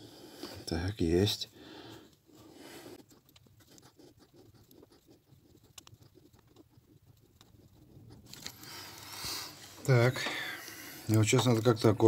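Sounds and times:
sensor threading clicks and scrapes: 3.0 - 9.1.

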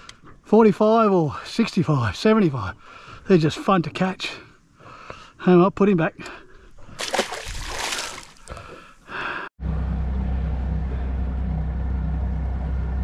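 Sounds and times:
fish splashing in water: 7.0 - 8.8.

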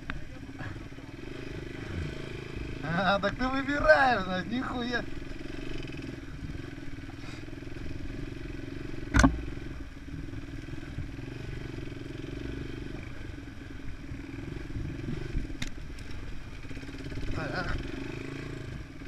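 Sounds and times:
dirt bike engine running: 0.0 - 19.0
sharp knock: 9.1 - 9.5.

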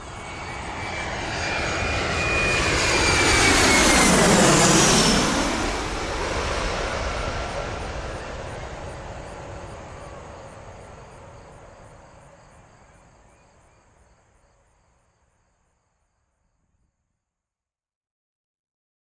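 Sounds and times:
airliner jet passing low: 0.0 - 14.1
high pulsing insect chirp: 6.9 - 15.5.

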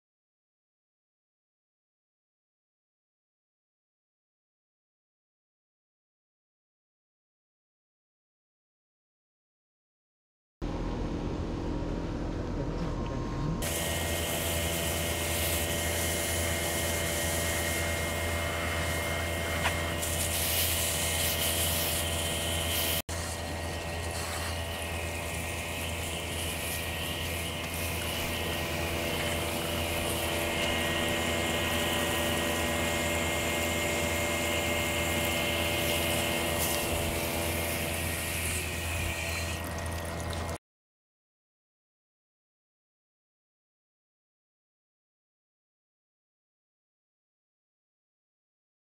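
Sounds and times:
air conditioner unit humming: 10.7 - 40.6
hose nozzle spraying water on rocks: 13.6 - 40.6.

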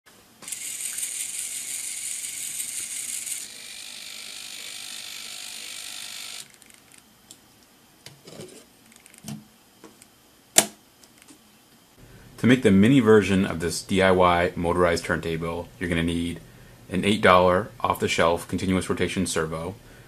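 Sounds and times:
servo motors whirring: 0.4 - 7.0.

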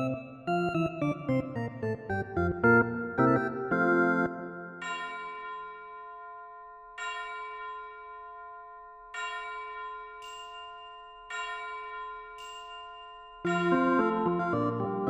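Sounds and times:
slow bell-like chime chords: 4.7 - 14.8
fuller busier music: 13.5 - 15.0.

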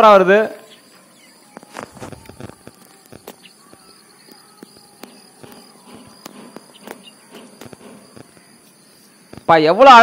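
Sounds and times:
insects chirring: 0.0 - 10.0
sharp ticks: 2.7 - 8.7.

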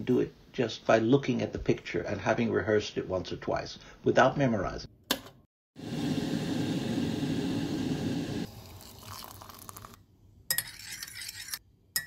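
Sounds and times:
glass clinking: 10.5 - 12.0.

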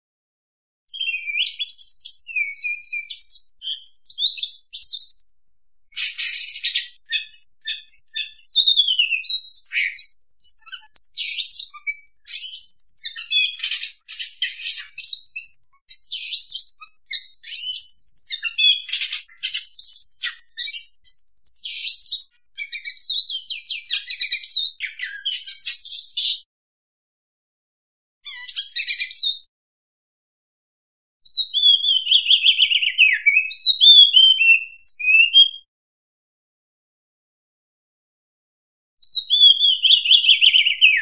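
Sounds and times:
bird singing whistles and chirps: 0.9 - 5.3, 5.9 - 26.4, 28.3 - 29.5, 31.3 - 35.7, 39.0 - 41.0.

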